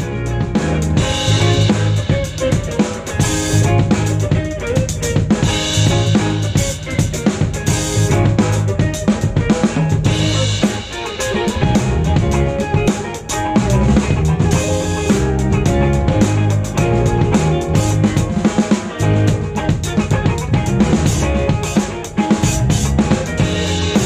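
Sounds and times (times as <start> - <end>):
drum kit playing: 0.0 - 24.0
electric guitar: 0.0 - 24.0.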